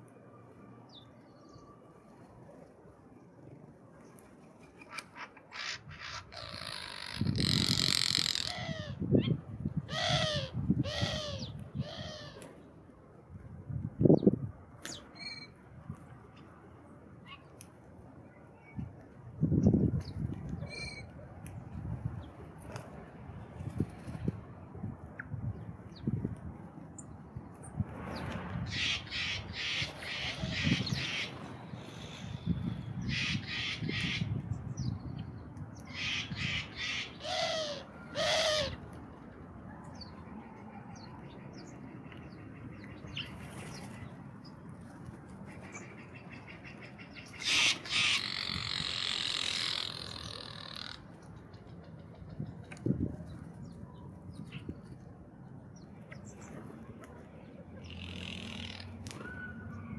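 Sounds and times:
jay harsh rasping calls: 5.6 - 9.0, 47.4 - 51.0.

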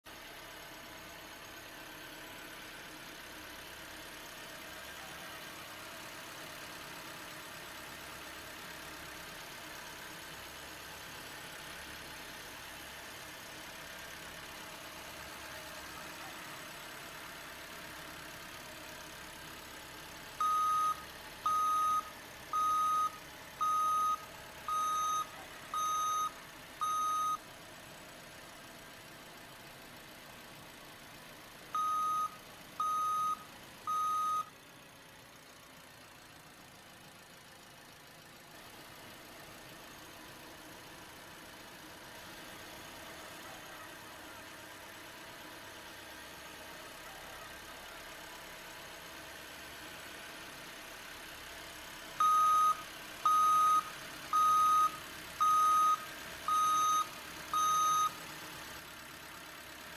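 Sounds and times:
reversing alarm beeps: 20.4 - 27.4, 31.8 - 34.5, 52.2 - 58.2.

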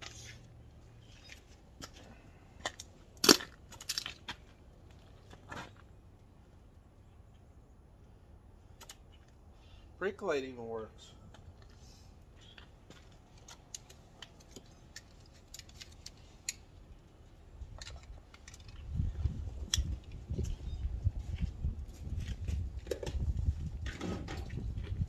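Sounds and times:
low rumbling buffeting: 16.2 - 25.0.

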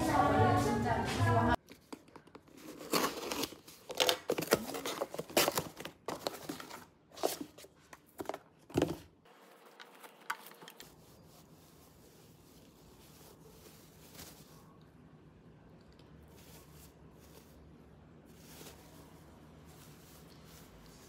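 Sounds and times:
faint handling sounds: 1.6 - 21.0
cardboard box torn open: 2.6 - 5.9.

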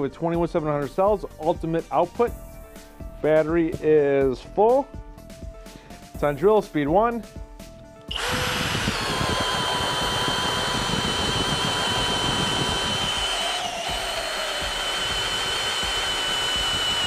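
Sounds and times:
drill motor whining under load: 8.1 - 17.0.

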